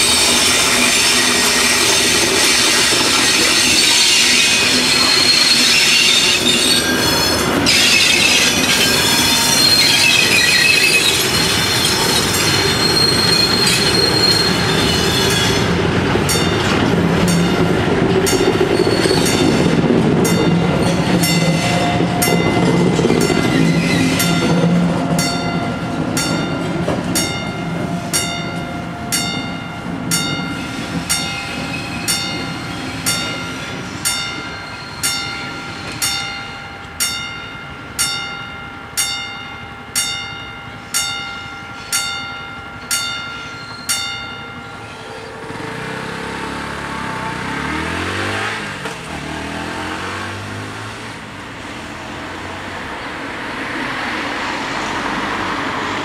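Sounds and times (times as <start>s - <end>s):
traffic approaching: 0.0s - 34.4s, 44.8s - 56.0s
level-crossing warning bells: 0.0s - 47.6s
freight train rumbling: 0.0s - 56.0s
car driving past: 45.5s - 51.2s.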